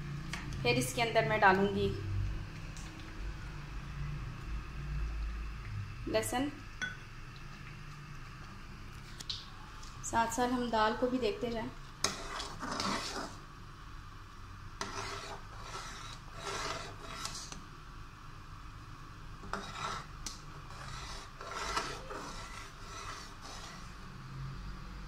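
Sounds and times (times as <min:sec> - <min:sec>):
thick dal simmering: 0:11.4 - 0:24.9
ladle scraping pot: 0:12.0 - 0:13.4, 0:14.8 - 0:17.6, 0:19.4 - 0:24.0.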